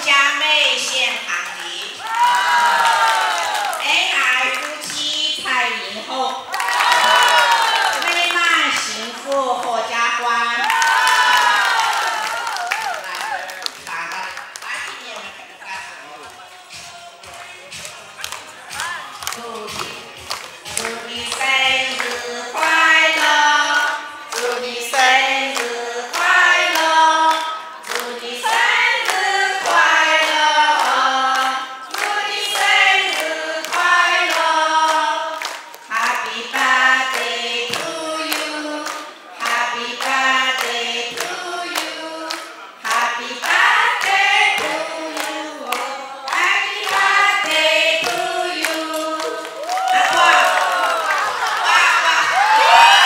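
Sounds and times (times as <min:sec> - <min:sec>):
hands clapping a steady beat: 0:10.7 - 0:51.6
women singing together: 0:20.6 - 0:53.0.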